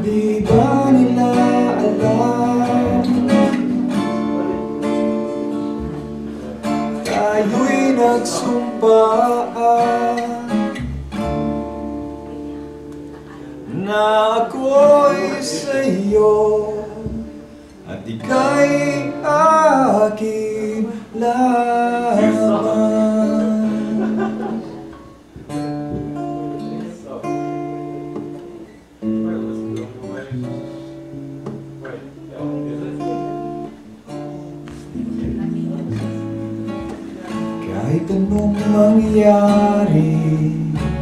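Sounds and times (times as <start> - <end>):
man singing into microphone: 0.0 - 3.6, 7.0 - 10.9, 13.7 - 24.8, 37.6 - 41.0
acoustic guitar strumming: 0.0 - 41.0
keyboard accompaniment: 0.0 - 41.0.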